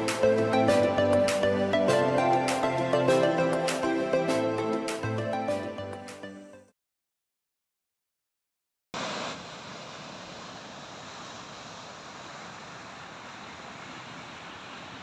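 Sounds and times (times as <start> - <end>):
sea surf breaking on shore: 9.0 - 15.0.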